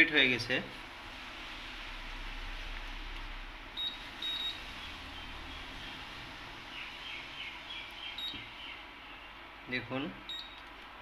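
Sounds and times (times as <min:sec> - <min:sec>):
steady low hum: 0:00.0 - 0:11.0
high electronic beeps: 0:03.8 - 0:05.0, 0:08.1 - 0:08.5, 0:10.2 - 0:10.6.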